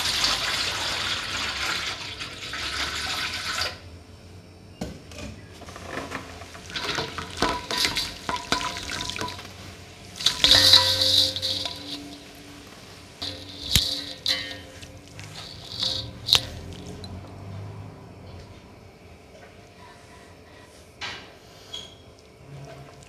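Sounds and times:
water pouring into metal bowl: 0:06.6 - 0:09.6, 0:10.2 - 0:17.2.

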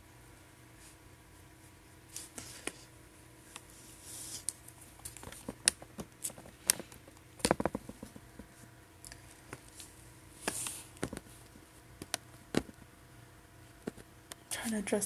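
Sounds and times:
small objects clicking and tapping: 0:04.5 - 0:08.3.

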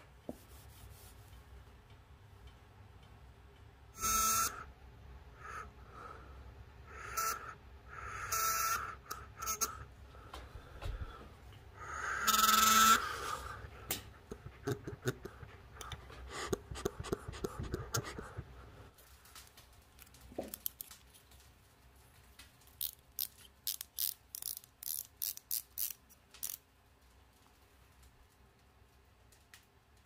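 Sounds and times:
small metal parts clicking: 0:19.4 - 0:21.4, 0:22.6 - 0:26.7.

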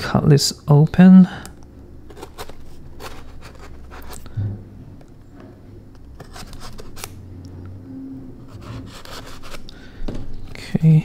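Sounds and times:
knife blade scraping cardboard: 0:02.1 - 0:04.2, 0:08.5 - 0:09.7.

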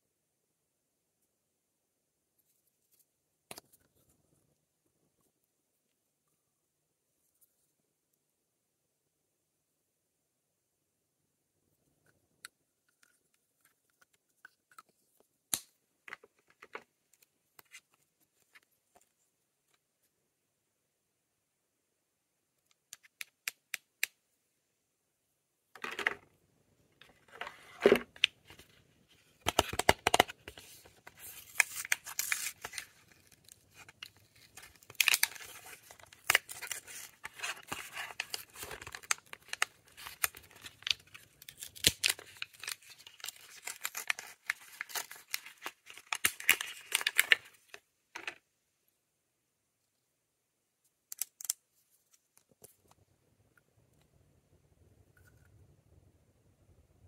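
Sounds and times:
packaging tearing and crinkling: 0:31.2 - 0:47.7.

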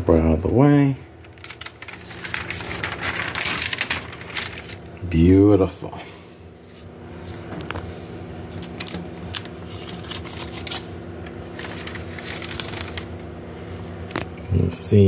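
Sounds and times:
steady low hum: 0:00.0 - 0:15.0
paper and cardboard crinkling: 0:01.2 - 0:04.9, 0:08.5 - 0:13.2.

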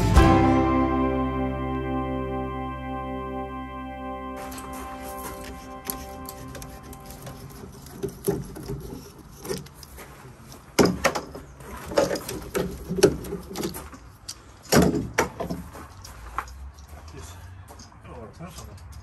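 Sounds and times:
steel bar clamps clanking: 0:05.8 - 0:10.0.

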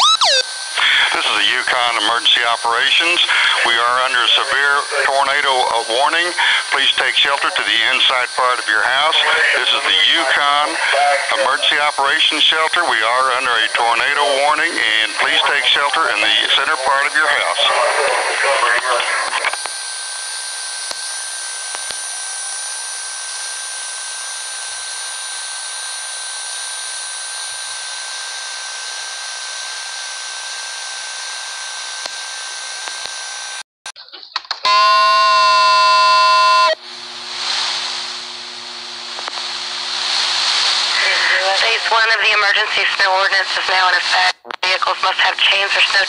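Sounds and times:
buzzy emergency alert tone: 0:00.0 - 0:12.6, 0:34.7 - 0:36.8.

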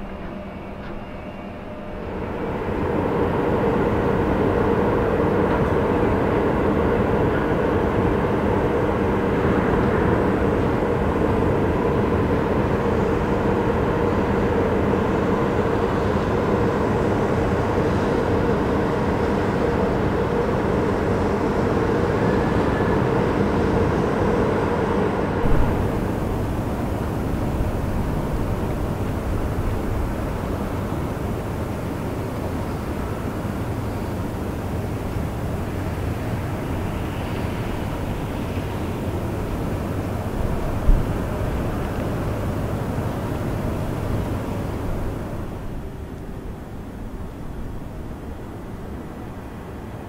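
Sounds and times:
heavy machinery drone: 0:22.8 - 0:45.7.

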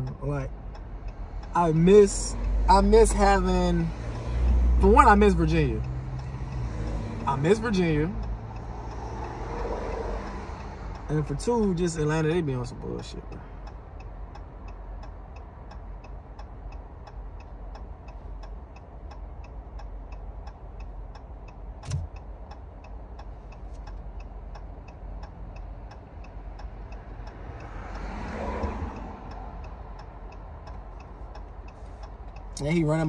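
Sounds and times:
low steady rumble: 0:00.0 - 0:09.0, 0:10.2 - 0:28.0, 0:28.6 - 0:33.0
turn signal ticking: 0:00.0 - 0:33.0.

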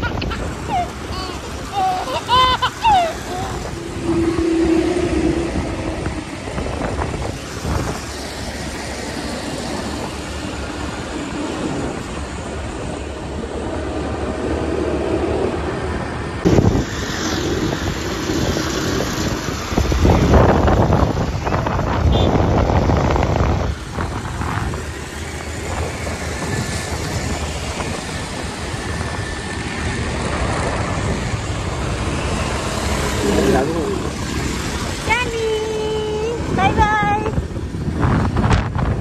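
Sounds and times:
road noise: 0:00.0 - 0:39.0
wind rushing over microphone: 0:00.0 - 0:39.0
motorcycle engine: 0:28.2 - 0:35.2.

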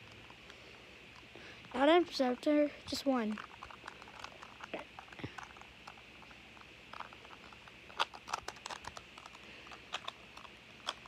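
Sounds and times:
puzzle cube plastic clicks: 0:03.3 - 0:11.0.

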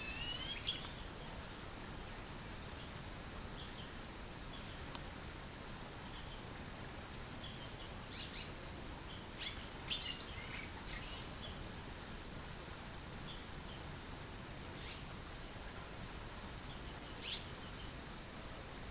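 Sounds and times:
swallow twittering chirps: 0:00.0 - 0:01.1, 0:09.1 - 0:11.6, 0:16.7 - 0:18.0
faint steady background noise: 0:00.0 - 0:18.9.

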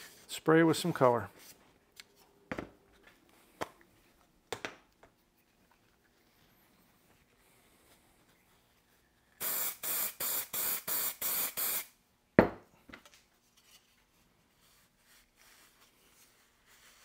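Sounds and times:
spray bottle squirting: 0:09.4 - 0:11.9.

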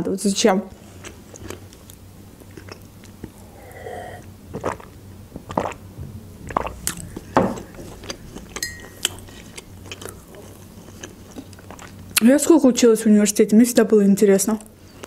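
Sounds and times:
person gulping and swallowing: 0:02.4 - 0:12.0.

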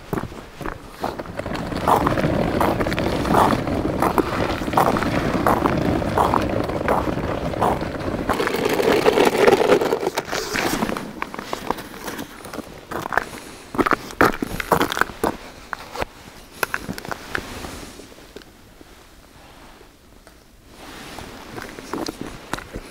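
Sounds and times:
rough scraping rumble: 0:00.0 - 0:15.4
footsteps on ice: 0:00.0 - 0:15.8
gear rustling and scraping: 0:00.0 - 0:18.0.

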